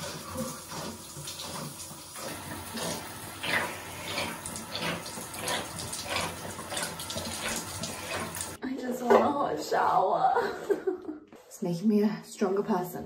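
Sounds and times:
shower water splashing: 0.0 - 8.6.

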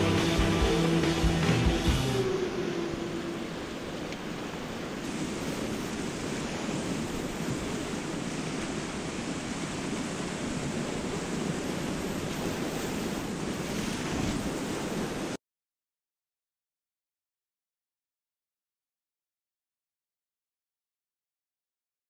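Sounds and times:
whitewater rapids rushing: 0.0 - 15.4
wind and spray on microphone: 4.2 - 15.4.

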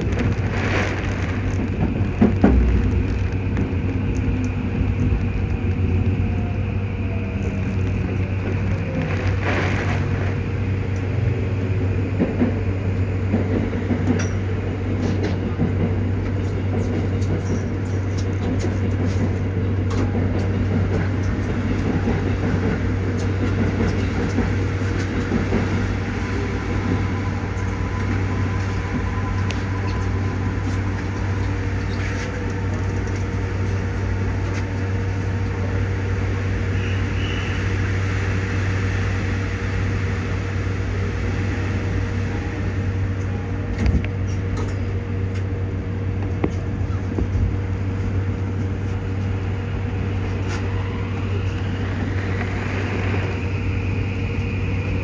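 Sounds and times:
heavy rain on windows: 0.0 - 3.3
train car low hum: 0.0 - 55.0.

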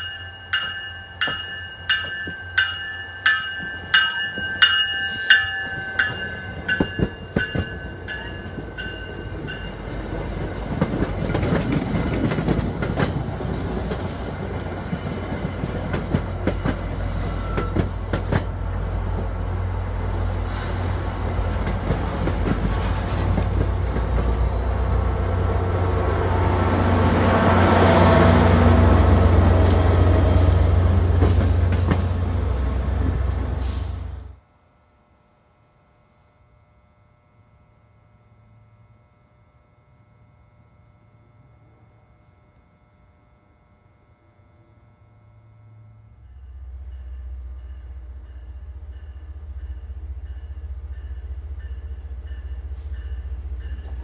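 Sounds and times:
ringing bell: 0.0 - 9.9
train low rumble: 0.0 - 54.0
train wheels clicking over rail joints: 1.2 - 19.4, 21.2 - 24.4, 31.0 - 32.3.

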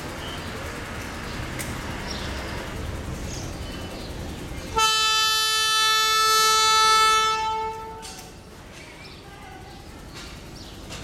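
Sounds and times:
train horn blast: 4.7 - 8.3.

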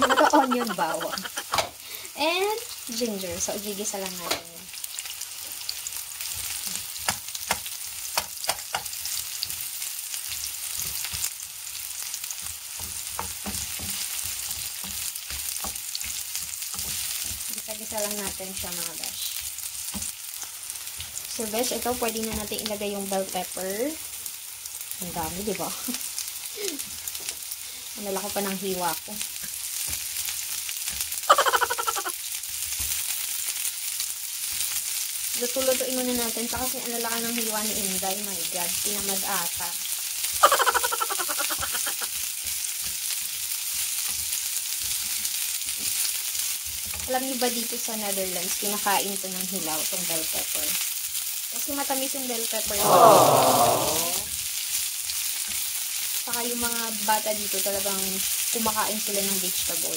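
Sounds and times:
food sizzling in hot oil: 0.0 - 59.9
spatula scraping and tapping pan: 12.7 - 17.5.

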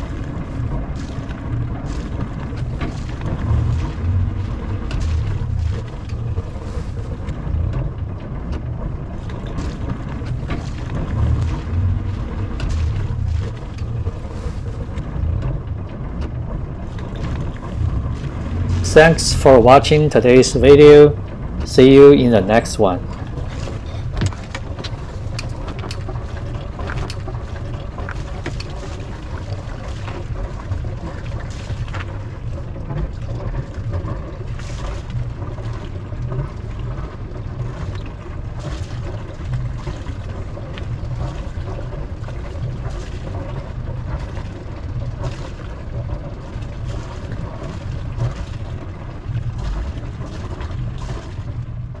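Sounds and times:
boat engine low rumble: 0.0 - 52.0.

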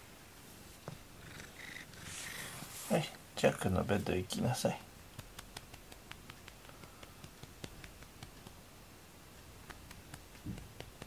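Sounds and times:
hand stroking cat fur: 2.0 - 3.2, 3.9 - 8.6, 9.5 - 11.0.

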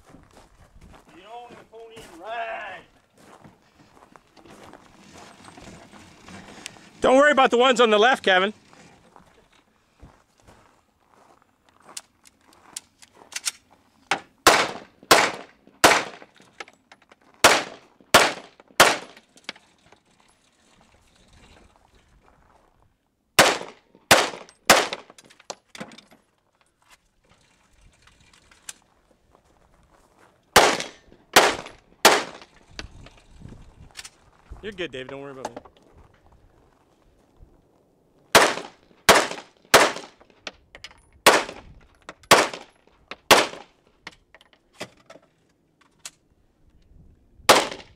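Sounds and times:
gunshots: 14.4 - 16.3, 17.4 - 19.2, 23.4 - 25.2, 30.6 - 32.5, 38.3 - 40.2, 41.2 - 41.6, 42.3 - 42.7, 43.3 - 43.7, 47.5 - 47.9.

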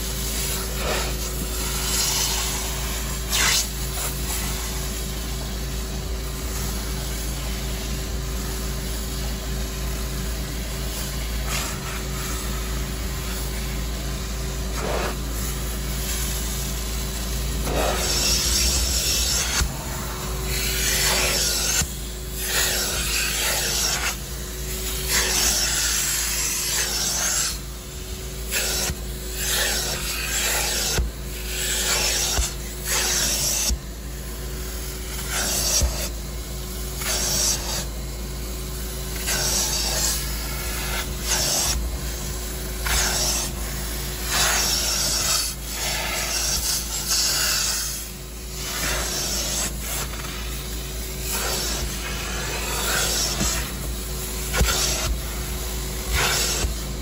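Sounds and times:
rasping suction hiss: 0.2 - 5.0, 14.7 - 36.3, 36.9 - 38.0, 38.7 - 57.0
extractor machine running: 17.4 - 22.4.

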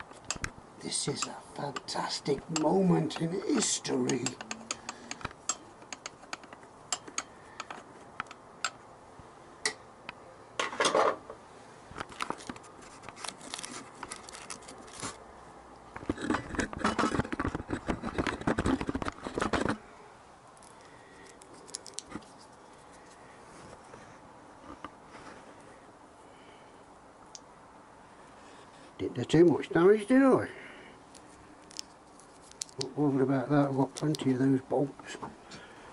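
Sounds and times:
metal tools clicking and scraping: 0.0 - 8.8.

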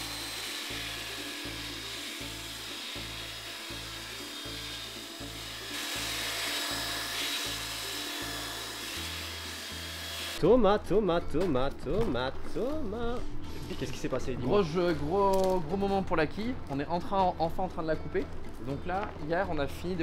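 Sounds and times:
belt sander on wood: 0.0 - 10.4.

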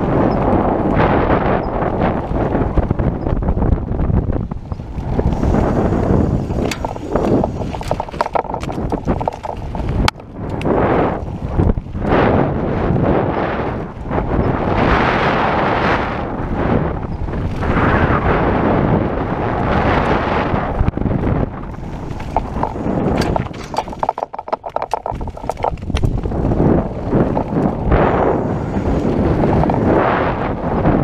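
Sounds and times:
bike clicking and rattling: 0.0 - 13.0, 19.4 - 30.9
wind buffeting microphone: 0.0 - 31.0.

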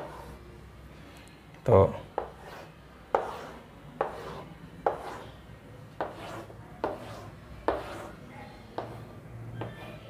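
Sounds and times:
chalk scraping on chalkboard: 0.0 - 0.4, 1.9 - 10.0
chalk tapping on chalkboard: 0.0 - 0.4, 2.1 - 5.4, 6.0 - 8.2, 8.8 - 10.0.

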